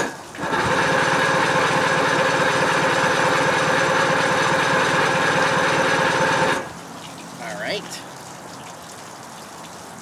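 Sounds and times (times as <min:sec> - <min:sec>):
electric starter cranking engine: 0:00.0 - 0:06.7.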